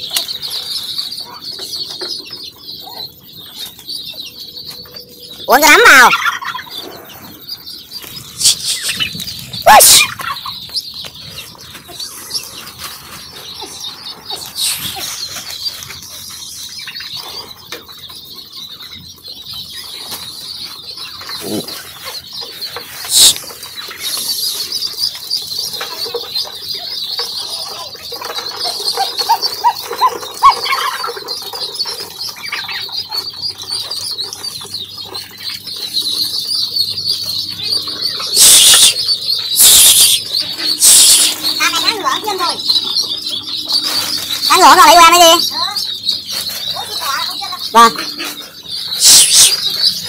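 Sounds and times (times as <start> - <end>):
ducklings peeping: 0.0 - 50.0
wings flapping and scuffling: 8.0 - 18.1.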